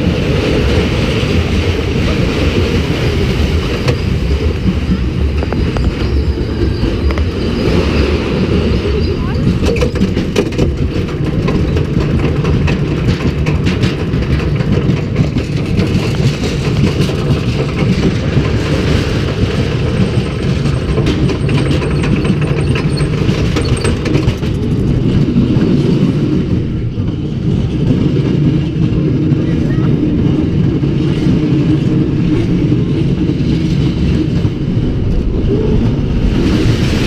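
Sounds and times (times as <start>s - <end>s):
low rumble of lift drive: 0.0s - 37.0s
rapid clacking: 9.3s - 26.2s.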